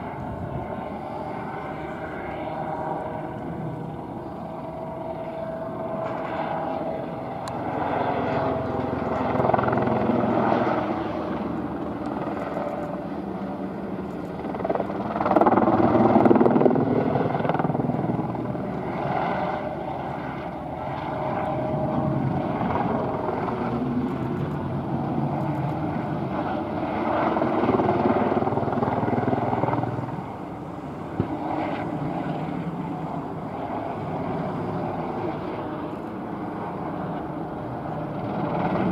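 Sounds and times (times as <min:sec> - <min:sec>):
helicopter engine and rotor: 0:00.0 - 0:38.9.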